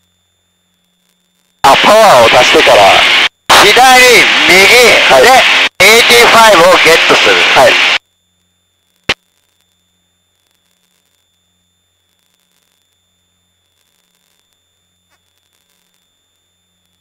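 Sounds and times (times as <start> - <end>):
faint electrical hum: 0.0 - 17.0
high-pitched whine: 0.1 - 17.0.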